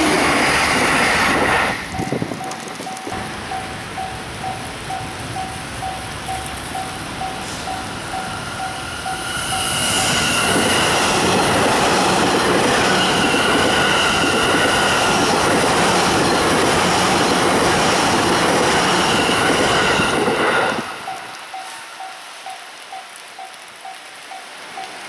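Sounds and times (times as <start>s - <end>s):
train passing at high speed: 0.0s - 25.0s
level crossing warning bell: 1.9s - 25.0s.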